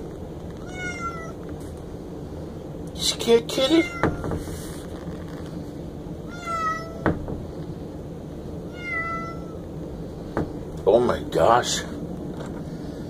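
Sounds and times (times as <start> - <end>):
cat meowing: 0.6 - 1.4, 3.6 - 4.4, 6.3 - 7.1, 8.7 - 9.6.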